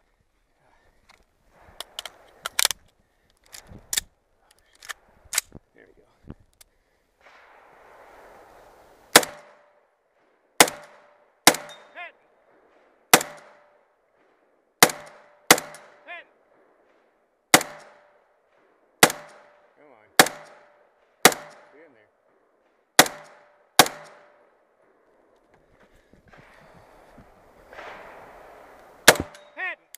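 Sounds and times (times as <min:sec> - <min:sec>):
rifle gunshots: 0:07.2 - 0:21.9, 0:23.0 - 0:25.0, 0:26.4 - 0:29.6.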